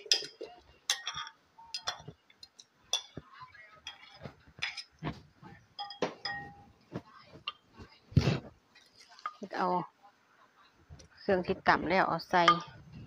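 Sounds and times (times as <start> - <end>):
clinks on ceramic bowl: 0.1 - 2.2, 5.8 - 6.6.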